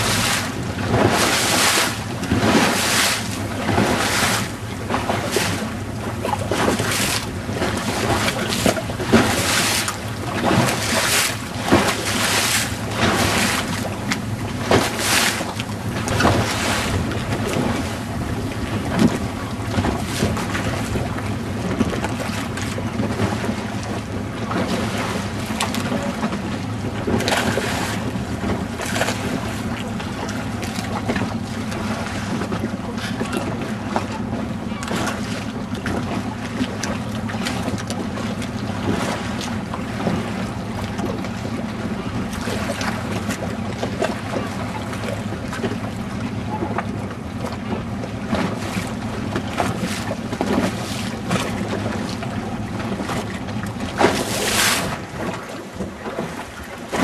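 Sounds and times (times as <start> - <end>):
boat engine running: 0.0 - 57.0
water splashing: 0.0 - 57.0.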